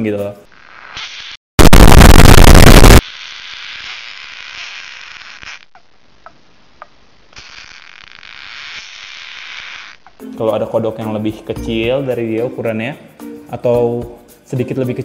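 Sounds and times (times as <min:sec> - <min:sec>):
steady hiss: 0:00.5 - 0:10.2
loud distorted noise blast: 0:01.6 - 0:03.0.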